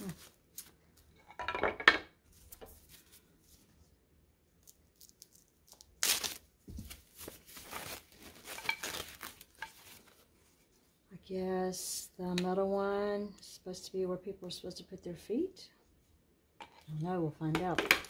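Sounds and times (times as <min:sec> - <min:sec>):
foam packing wrap crinkling: 0:04.6 - 0:10.2.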